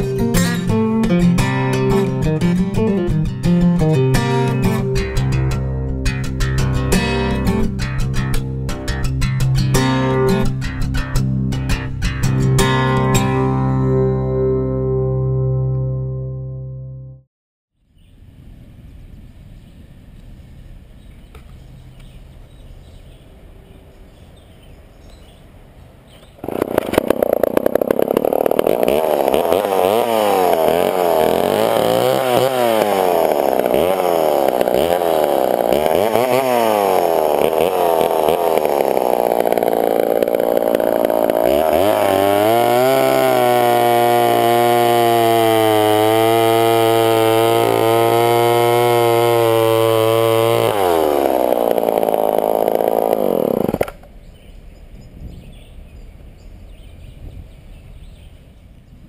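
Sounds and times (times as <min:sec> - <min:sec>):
chainsaw cutting through log: 0:26.4 - 0:54.1
chainsaw engine revving: 0:26.4 - 0:54.1.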